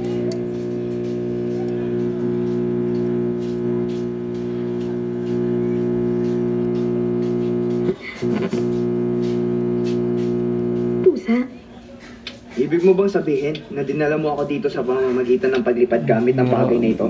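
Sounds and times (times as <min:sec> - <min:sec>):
connector crackles: 0:00.0 - 0:11.0
electrical hum from speaker: 0:00.0 - 0:11.5, 0:13.8 - 0:17.0.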